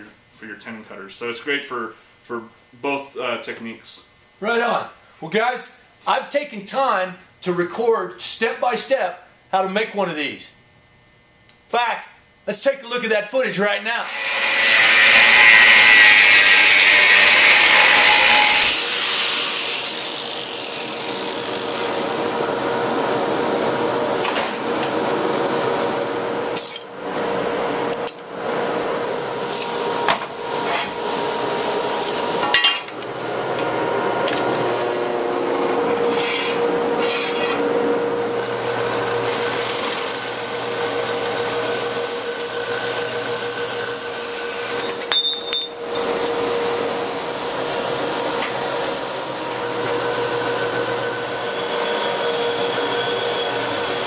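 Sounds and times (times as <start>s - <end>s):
angle grinder cutting steel: 14.0s - 22.6s, 36.0s - 46.4s, 49.3s - 54.0s
machine and tool noise: 14.0s - 54.0s.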